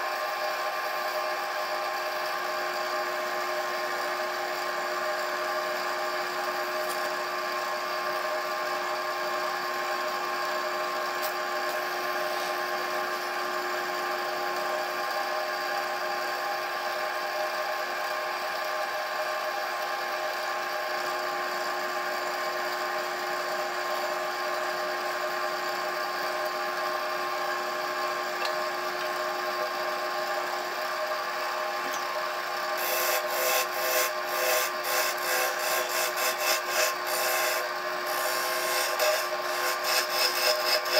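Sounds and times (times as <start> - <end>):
wood lathe motor hum: 19.8 - 40.9
turning tool scraping wood: 32.8 - 40.9.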